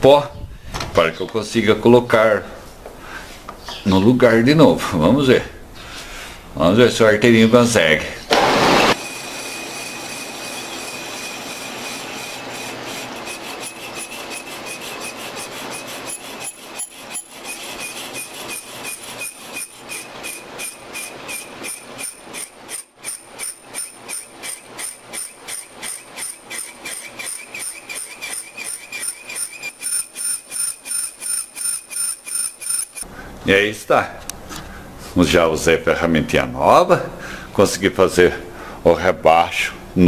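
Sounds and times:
metal lathe cutting with whine: 8.4 - 22.1.

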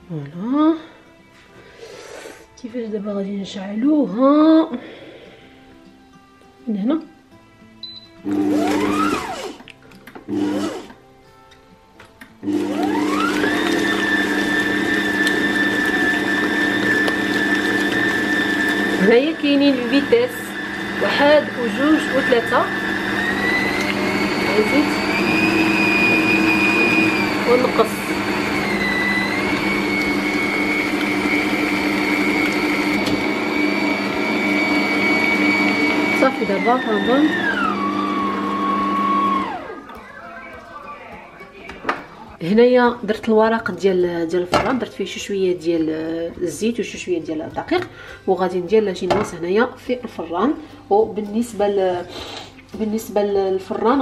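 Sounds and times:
stand mixer motor whining: 8.2 - 9.6, 10.3 - 11.0, 12.4 - 40.0.

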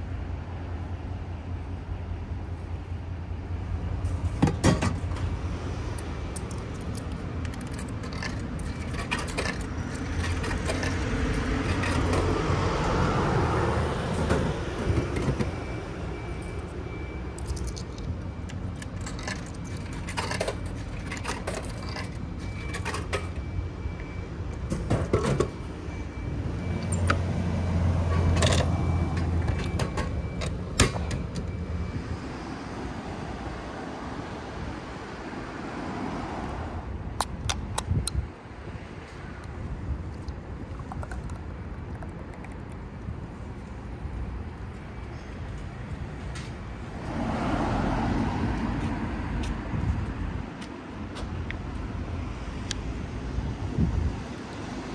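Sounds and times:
coins clinking through coin slot: 6.4 - 12.4, 18.8 - 23.4.

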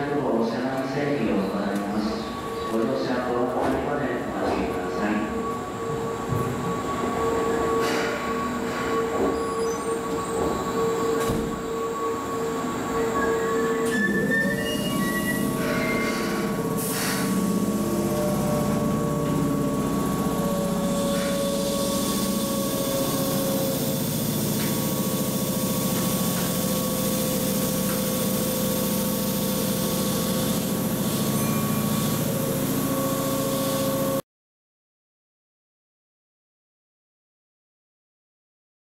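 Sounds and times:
electric train equipment hum: 0.0 - 34.2
short air hiss: 16.8 - 17.4.

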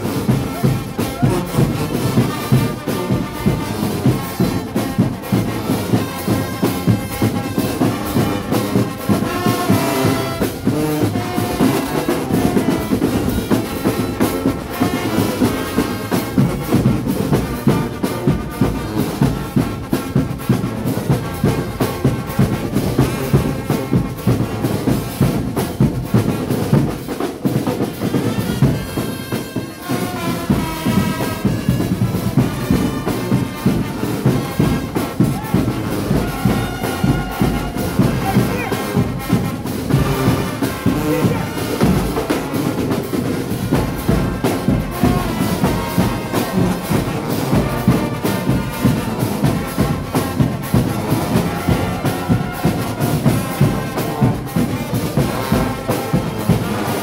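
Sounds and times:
brass playing a tune: 0.0 - 57.0
marching drums: 0.0 - 57.0.

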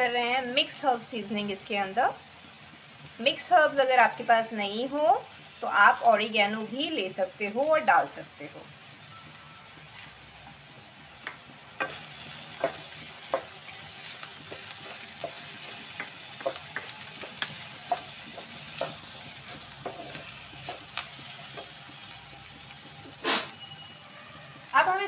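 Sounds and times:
vegetables sizzling in oil: 0.0 - 25.0
wooden spatula scraping wok: 11.8 - 24.7.

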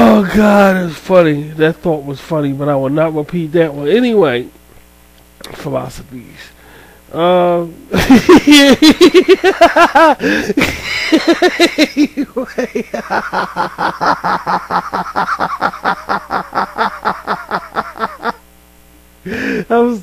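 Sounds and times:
man laughing hard: 8.0 - 18.4.

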